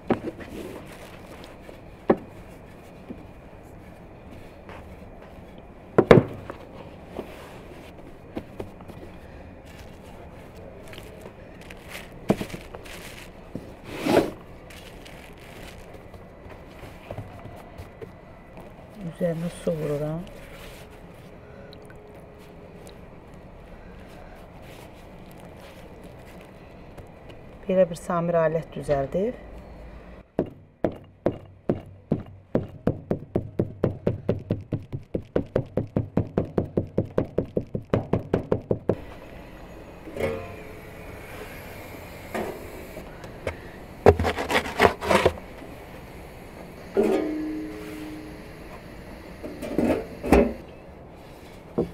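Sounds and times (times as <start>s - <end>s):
rolling pin scraping across board: 11.8s - 14.4s, 44.0s - 45.4s
fingertips pressing dough: 30.4s - 39.0s.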